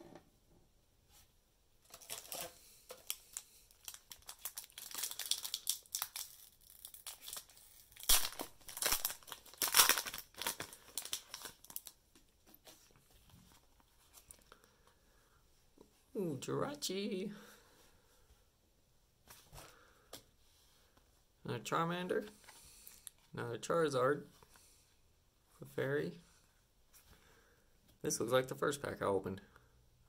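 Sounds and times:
foil wrapper tearing and crinkling: 1.9 - 12.0.

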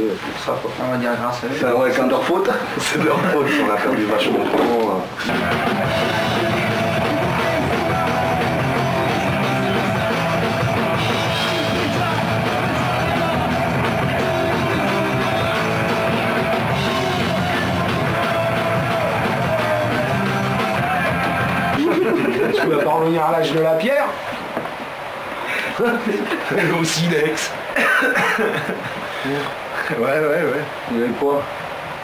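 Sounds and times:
electric guitar: 4.4 - 22.6
drum kit: 4.5 - 23.7.

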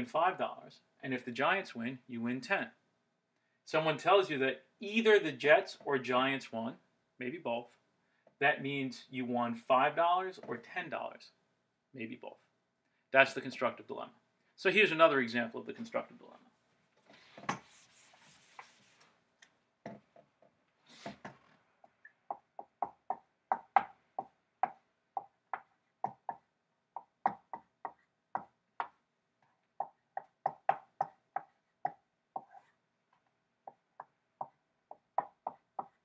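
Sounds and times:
marker writing on whiteboard: 17.0 - 19.1, 19.9 - 36.0
whiteboard being wiped: 17.1 - 19.2.

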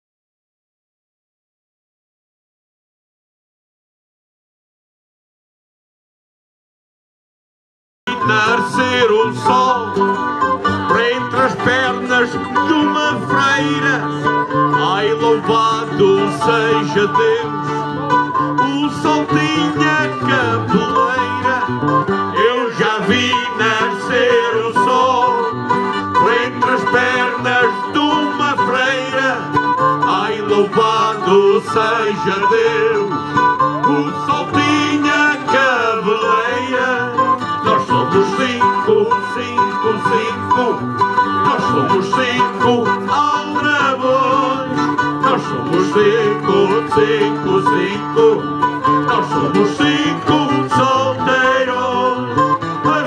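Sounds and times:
acoustic guitars strumming: 8.1 - 53.0
men singing into microphones: 8.1 - 53.0.

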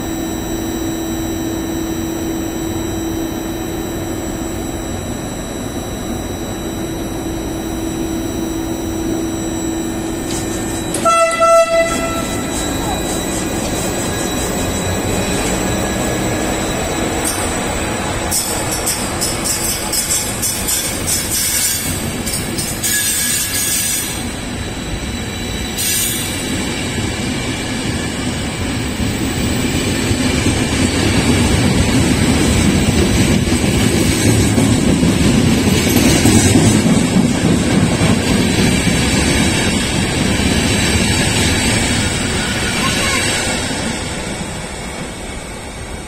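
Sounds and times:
high wheel squeal: 7.0 - 17.7, 18.4 - 27.0, 39.7 - 44.1
train wheels rumbling on rails: 7.7 - 46.0.

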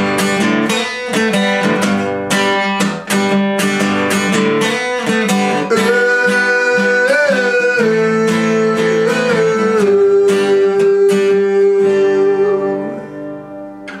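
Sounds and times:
acoustic guitar strumming: 0.0 - 14.0
wordless singing: 5.5 - 13.2.

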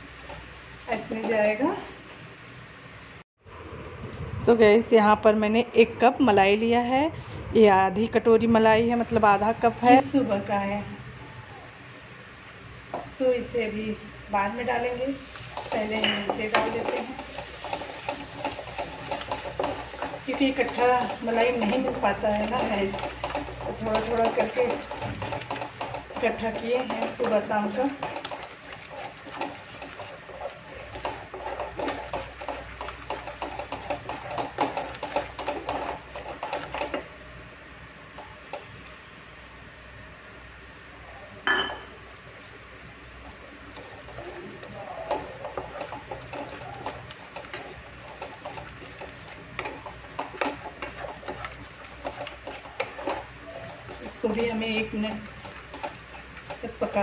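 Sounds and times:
wooden spatula stirring thick sauce: 14.6 - 37.1, 43.8 - 57.0
spatula knocking against pot: 15.6 - 37.0.

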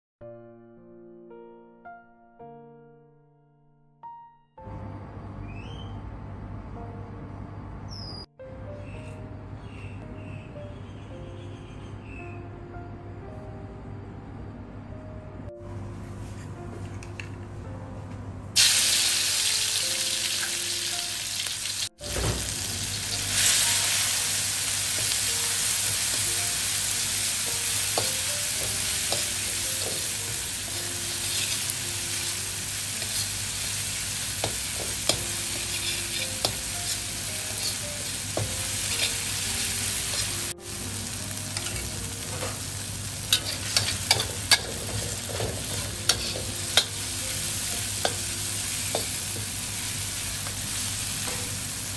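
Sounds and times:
chilies and garlic sizzling in oil: 18.6 - 51.9
metal ladle scraping a wok: 31.1 - 31.7, 35.0 - 37.8, 43.3 - 47.0.

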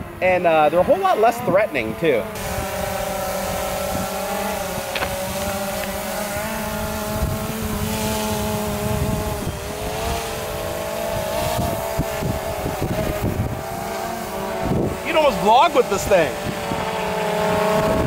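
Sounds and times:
drone propellers whining: 0.0 - 18.0.

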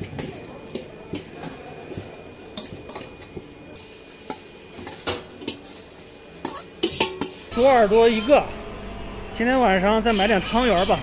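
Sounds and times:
steel bowl and utensil clinking: 6.4 - 7.5.

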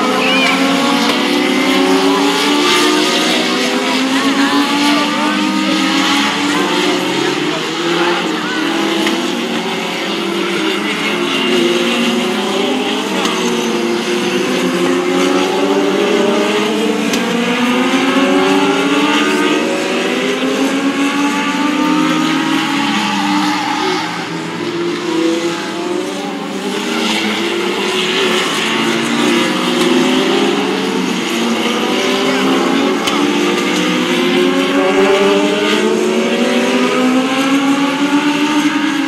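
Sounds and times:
race car engines passing at full throttle: 0.0 - 39.0.

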